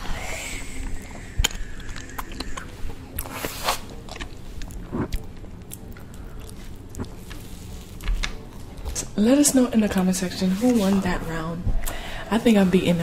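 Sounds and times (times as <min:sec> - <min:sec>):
biting and chewing: 0:01.4 - 0:08.9.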